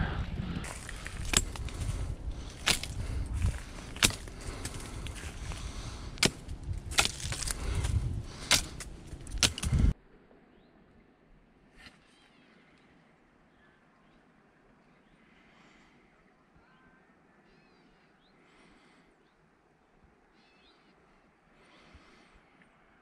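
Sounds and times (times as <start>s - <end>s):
hand tool chopping branches: 0.7s - 10.0s.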